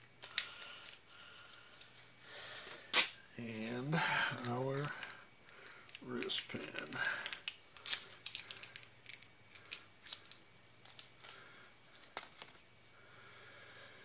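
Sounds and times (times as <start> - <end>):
plastic packaging crinkling: 4.2 - 12.6.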